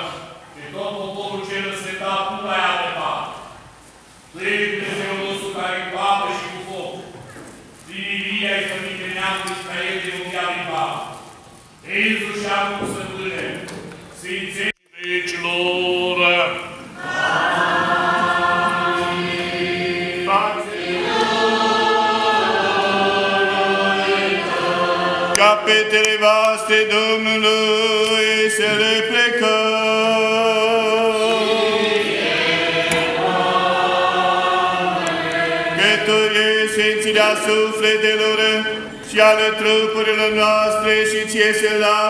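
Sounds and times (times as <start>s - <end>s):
voices chanting: 15.3s - 41.8s.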